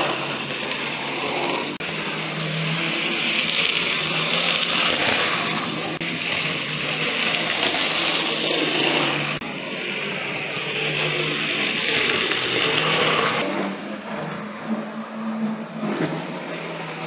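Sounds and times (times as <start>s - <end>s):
wheels rattling on rail: 0.0s - 9.4s
model train motors whirring: 0.0s - 13.5s.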